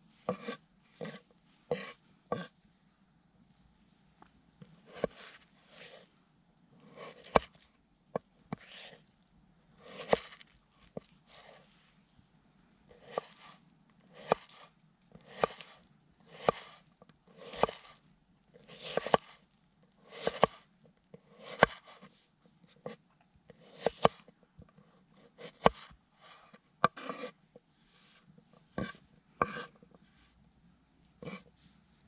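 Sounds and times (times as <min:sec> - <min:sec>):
knife slicing raw potato: 0:00.3 - 0:02.6, 0:04.7 - 0:06.1, 0:06.8 - 0:09.1, 0:09.7 - 0:11.6, 0:12.9 - 0:18.0, 0:18.6 - 0:30.2, 0:31.2 - 0:31.6.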